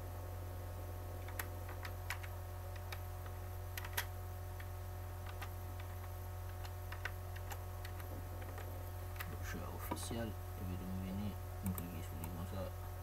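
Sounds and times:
steady low hum: 0.0 - 13.0
keyboard keystrokes: 1.2 - 9.3.

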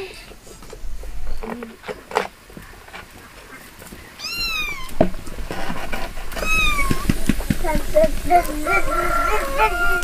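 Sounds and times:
embers crackling: 0.0 - 10.0
cat meowing: 4.2 - 5.0, 6.4 - 7.1.

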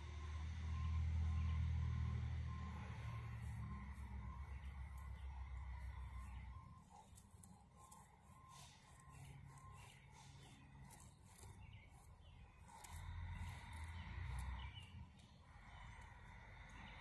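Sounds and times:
distant birds chirping: 0.0 - 17.0.

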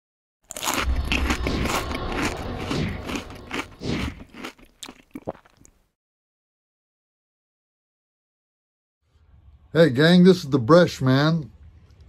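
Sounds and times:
crunching and crackling: 0.5 - 5.8.

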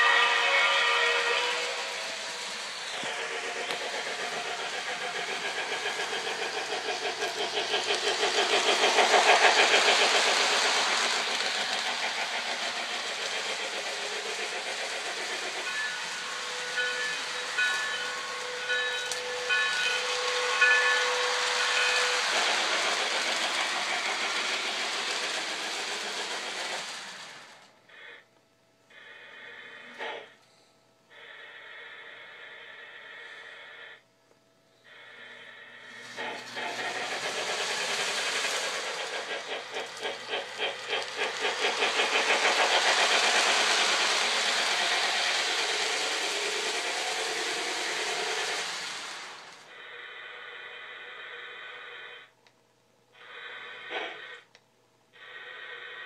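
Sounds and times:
toy steam locomotive chuffing: 0.0 - 28.3, 28.9 - 34.0, 34.8 - 56.0
locomotive bell ringing: 15.4 - 22.3.

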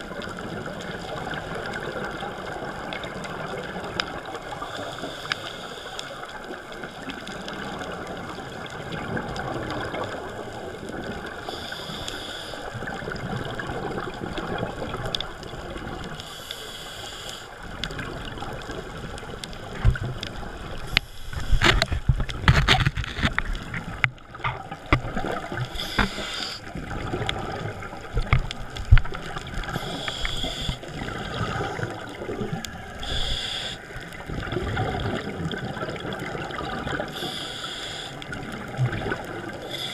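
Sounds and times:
underwater rushing: 0.0 - 39.9
regulator bubbles: 17.8 - 39.9.

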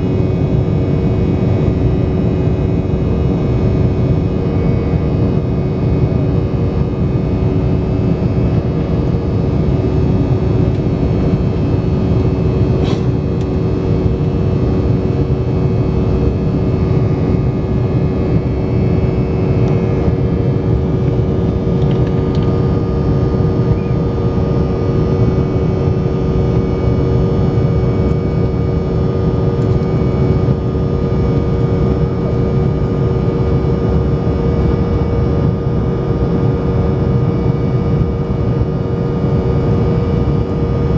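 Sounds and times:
engine hum: 0.0 - 40.9
airliner cabin airflow rush: 10.0 - 33.7.

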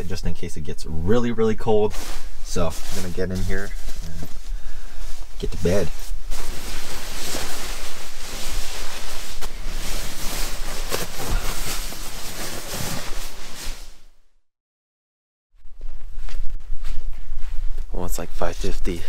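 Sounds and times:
sleeping bag rustling: 1.8 - 14.2.

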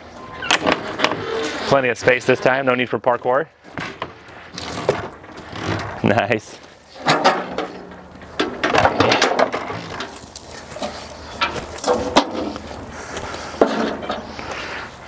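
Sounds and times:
metal steps clanking and rattling: 6.9 - 12.7, 13.5 - 14.5.

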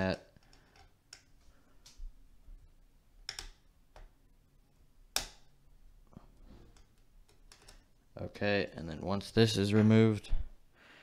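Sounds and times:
screwdriver clicks and taps: 3.3 - 4.1.

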